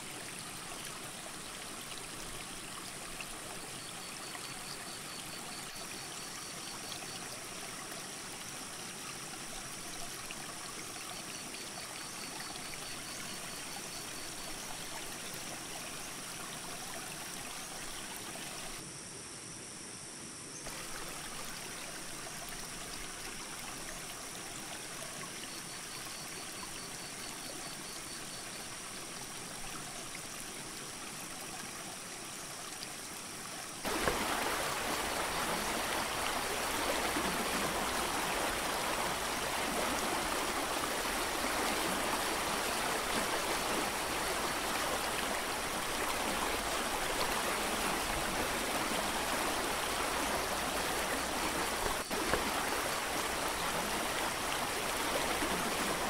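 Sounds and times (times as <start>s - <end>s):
creek rushing over boulders: 0.0s - 3.8s, 29.3s - 56.0s.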